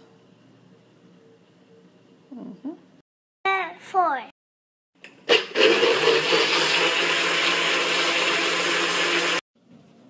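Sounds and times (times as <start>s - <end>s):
blender whirring: 5.1s - 9.4s.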